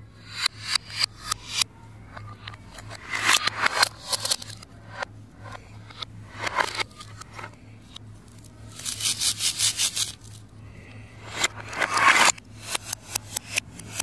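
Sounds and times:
faint low hum: 0.0s - 14.0s
toy knife scraping toy fruit: 8.6s - 10.4s.

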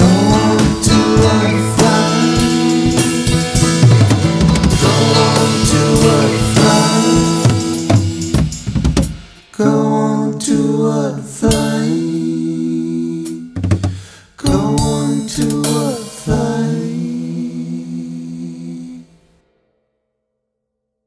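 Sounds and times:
person singing long held notes: 0.0s - 3.8s, 4.7s - 8.4s, 9.5s - 13.6s, 14.2s - 19.2s
drum hits: 0.0s - 9.6s, 13.3s - 16.8s
acoustic guitar: 0.0s - 19.3s.

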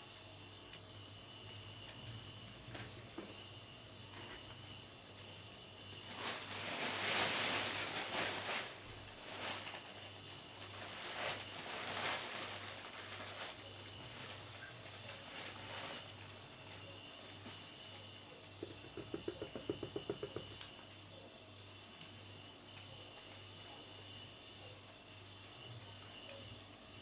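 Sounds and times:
cat rustling in fabric tunnel: 6.0s - 16.6s.

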